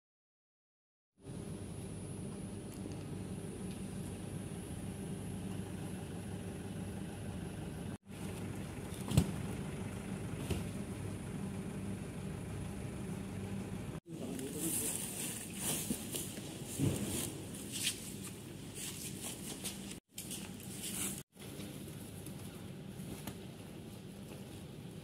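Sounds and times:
truck engine idling: 0:03.8 - 0:14.0.

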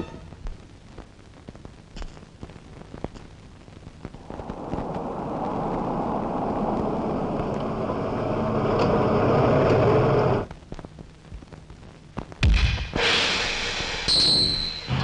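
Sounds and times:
car approaching on road: 0:04.2 - 0:10.4.

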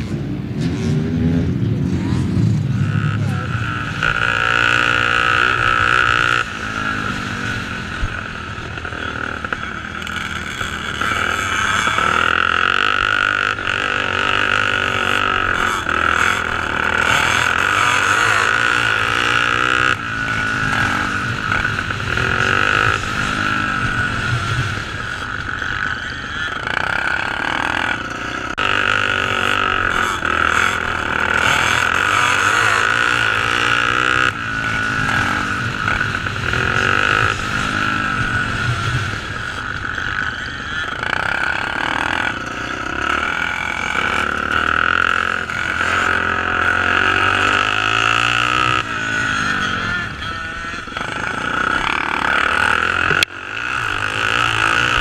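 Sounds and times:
motorcycle engines revving: 0:00.0 - 0:55.0.

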